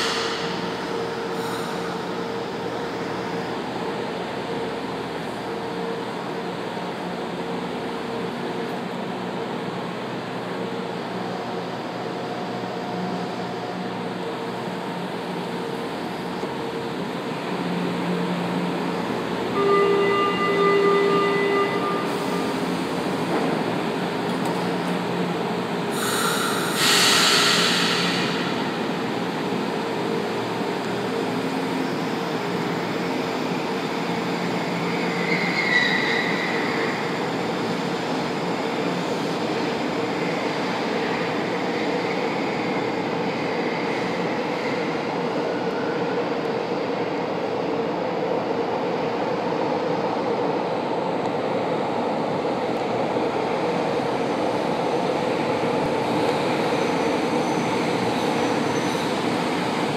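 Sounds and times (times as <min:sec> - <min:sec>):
train wheels and motors rumbling: 0:00.0 - 0:59.9
burst of hiss: 0:25.9 - 0:28.5
brief squeal: 0:35.1 - 0:37.0, 0:58.3 - 0:59.2.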